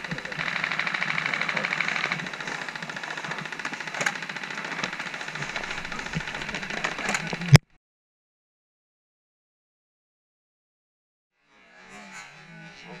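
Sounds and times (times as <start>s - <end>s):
airsoft guns firing full auto: 0.0s - 7.6s
loud crack: 0.0s - 7.6s
sharp clicks: 0.0s - 7.6s.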